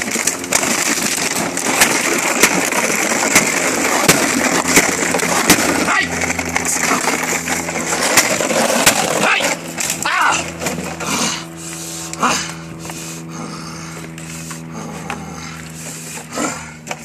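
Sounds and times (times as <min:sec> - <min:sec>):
plastic bottles crackling: 0:00.0 - 0:11.1
steady low hum: 0:00.0 - 0:17.0.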